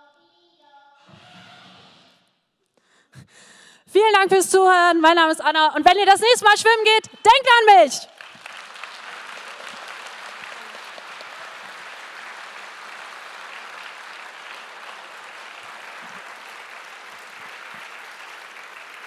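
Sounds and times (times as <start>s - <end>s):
audience applauding: 8.1s - 19.0s.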